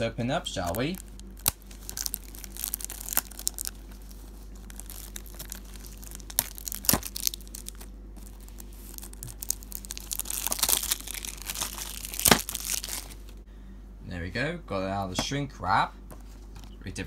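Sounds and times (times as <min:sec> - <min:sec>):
plastic wrap tearing and crinkling: 0:00.6 - 0:13.4.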